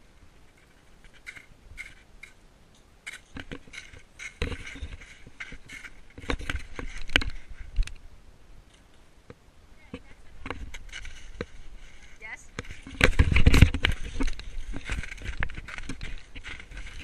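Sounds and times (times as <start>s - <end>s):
crusted snow crunching underfoot: 3.1s - 7.8s, 10.0s - 17.0s.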